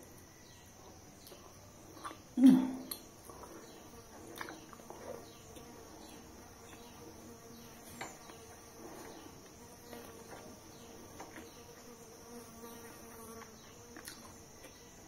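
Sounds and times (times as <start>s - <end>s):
faint buzzing hum: 0.0s - 15.0s
person chewing food: 2.8s - 5.7s, 13.9s - 14.8s.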